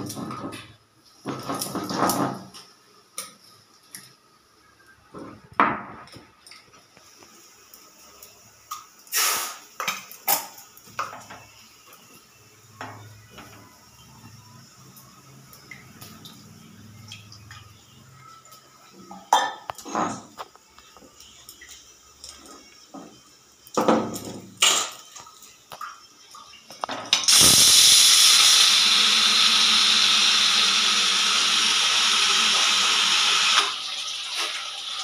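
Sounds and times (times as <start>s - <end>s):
loud hissing steam whistle: 9.1s - 9.6s, 27.3s - 33.8s
steam sputtering and valve rattling: 9.1s - 9.7s, 27.2s - 33.8s.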